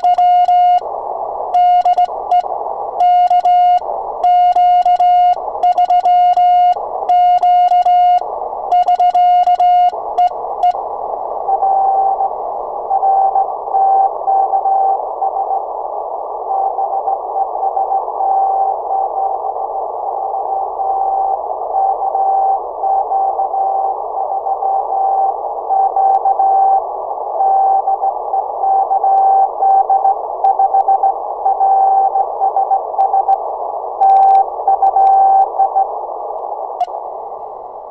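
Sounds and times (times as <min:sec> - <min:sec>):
morse code sidetone: 0:00.0 - 0:00.9, 0:01.5 - 0:10.8, 0:34.0 - 0:35.9
radio band noise hiss: 0:00.0 - 0:37.9.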